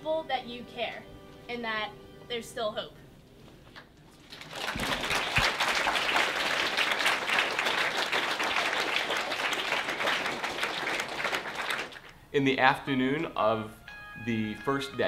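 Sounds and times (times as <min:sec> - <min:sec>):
crowd applauding: 0:04.1 - 0:12.2.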